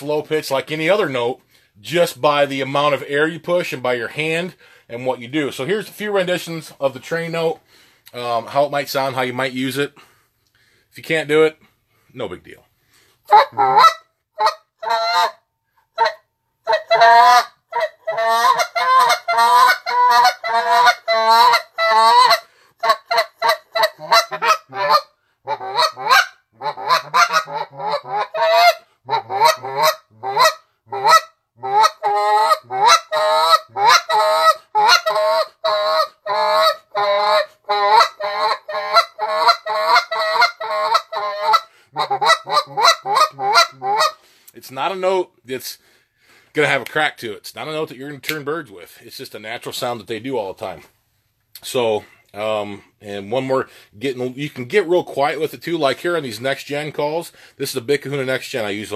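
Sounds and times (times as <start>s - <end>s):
goose call honking notes: 13.3s - 15.4s, 16.0s - 44.2s.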